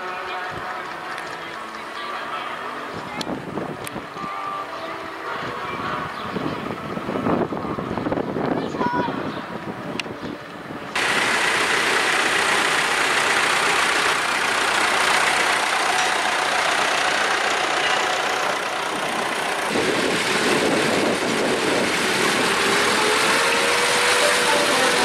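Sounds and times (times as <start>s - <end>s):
large tractor engine: 0.0s - 8.3s, 10.0s - 25.0s
tractor engine driving past: 11.0s - 25.0s.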